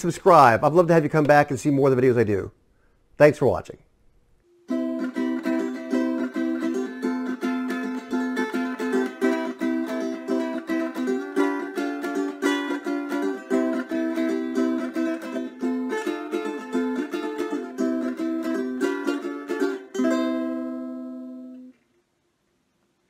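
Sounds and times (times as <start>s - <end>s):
ukulele strumming: 4.7s - 21.8s.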